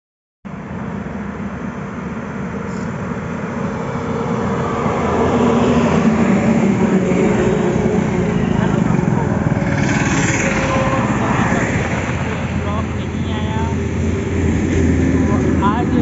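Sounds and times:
highway traffic rumble: 0.5 - 16.0
motorcycle engine approaching: 3.2 - 16.0.

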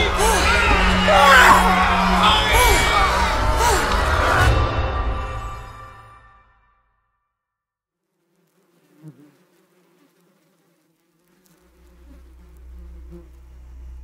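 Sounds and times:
flies buzzing: 8.1 - 14.0
low rumbling drone: 12.3 - 14.0.

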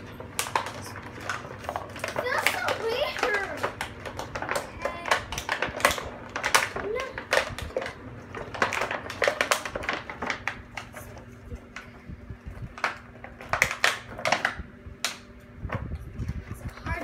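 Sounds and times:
plastic packaging crinkling: 0.0 - 11.1.

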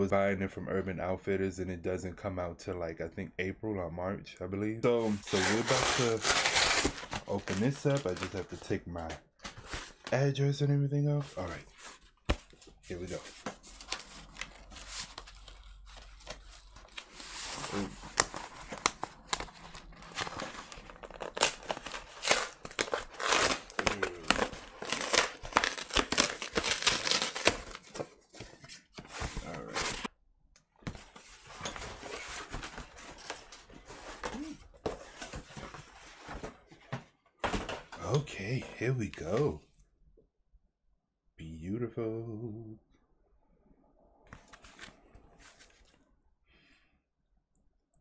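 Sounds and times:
cardboard ripping and crinkling: 5.0 - 8.5, 12.9 - 30.1.

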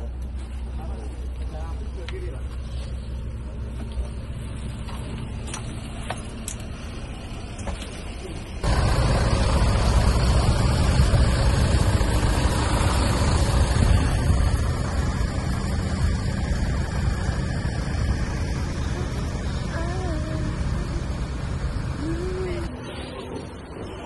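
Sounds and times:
bus engine hum inside cabin: 0.0 - 24.0
bus engines rumbling outdoors: 0.0 - 24.0.

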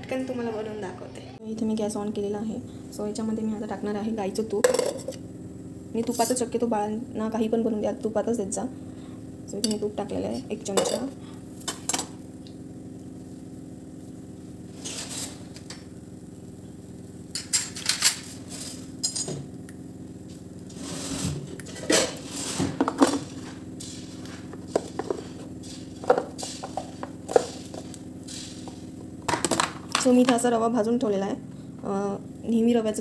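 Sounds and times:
steady low hum: 0.0 - 33.0
utensils and cookware clinking: 10.7 - 12.1, 17.3 - 19.4, 21.5 - 30.2.

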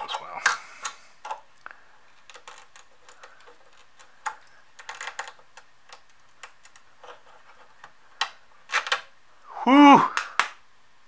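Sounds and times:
screwdriver clicking and scraping chip: 2.2 - 7.9.

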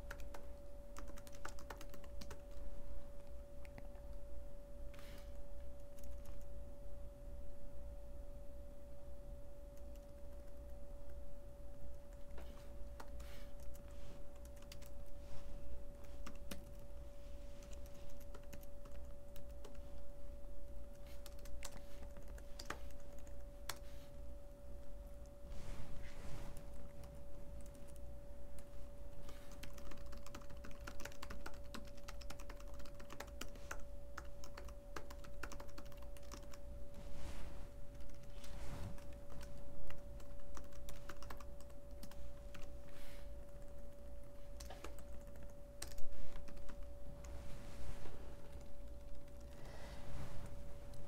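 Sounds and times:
keyboard typing: 0.0 - 2.6, 5.2 - 6.5, 9.7 - 11.2, 11.9 - 15.2, 15.9 - 20.1, 20.8 - 23.9, 26.6 - 36.6, 37.9 - 42.8, 43.4 - 47.4, 48.5 - 49.8.

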